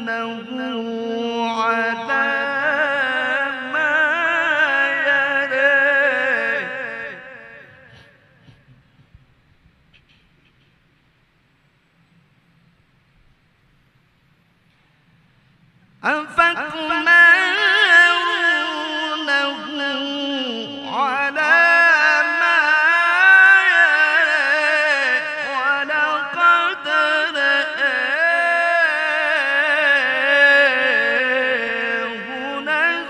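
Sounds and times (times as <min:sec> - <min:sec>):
man reciting melodically: 0:00.0 - 0:09.1, 0:16.0 - 0:33.0.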